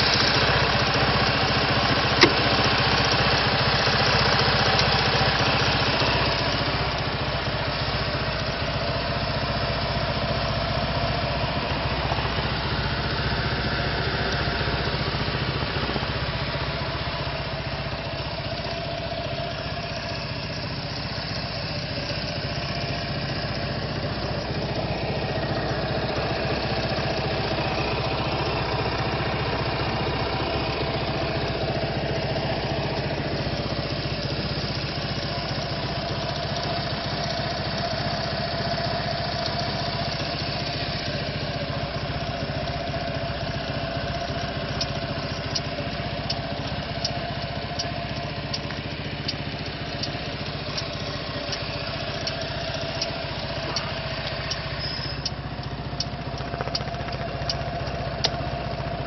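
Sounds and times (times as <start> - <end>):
scooter engine idling: 0.0 - 59.0
light ticks: 44.2 - 59.0.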